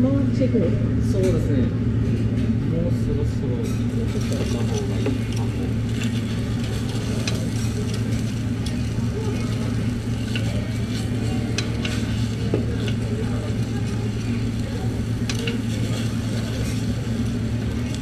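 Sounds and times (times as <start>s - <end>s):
steady low hum: 0.0s - 18.0s
batter sizzling in a hot pan: 3.6s - 18.0s
metal pick clicking and scraping: 4.2s - 13.0s.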